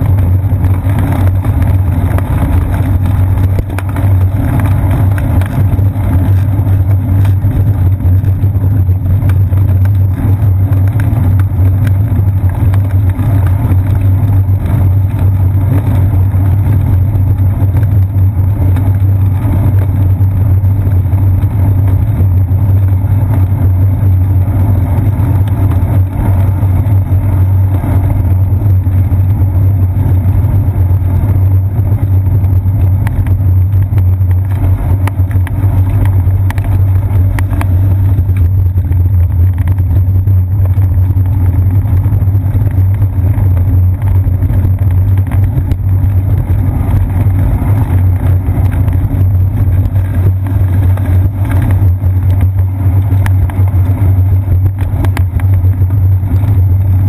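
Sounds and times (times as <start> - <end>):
bicycle tyre road rumble: 0.0 - 57.0.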